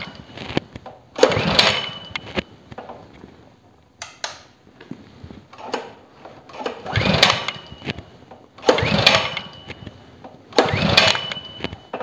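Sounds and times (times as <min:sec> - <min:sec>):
engine turning over whir: 0:00.0 - 0:02.5, 0:06.5 - 0:12.0
engine recoil starter pulls: 0:01.2 - 0:02.4, 0:05.5 - 0:07.9, 0:08.6 - 0:09.8, 0:10.5 - 0:11.6.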